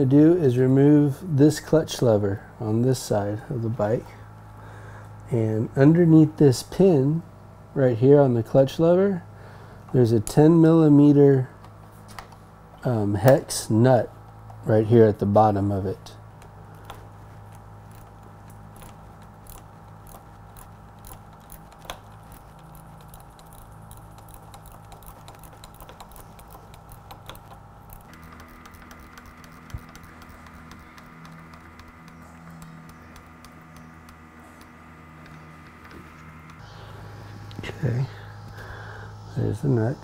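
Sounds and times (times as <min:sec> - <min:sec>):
room hum: 0:00.0 - 0:40.0
tool clicking on a nut: 0:16.4 - 0:36.6.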